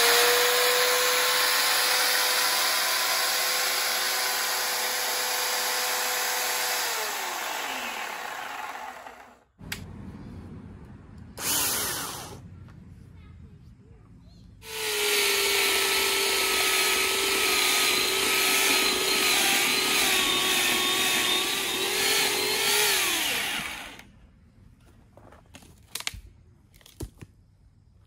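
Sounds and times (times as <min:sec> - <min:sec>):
electric chainsaw motor whine: 0:00.0 - 0:09.5, 0:11.4 - 0:12.4, 0:14.6 - 0:24.1.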